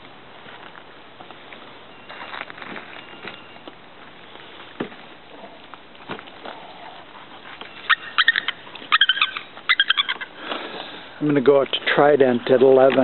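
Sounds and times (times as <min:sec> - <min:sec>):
eagles chattering calls: 0:03.0 - 0:11.1.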